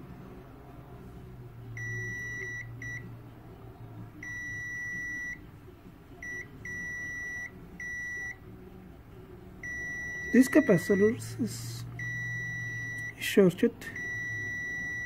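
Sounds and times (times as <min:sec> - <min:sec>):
multimeter continuity beeps: 0:01.7 - 0:03.1, 0:04.2 - 0:05.4, 0:06.2 - 0:08.4, 0:09.6 - 0:11.4, 0:12.0 - 0:15.0.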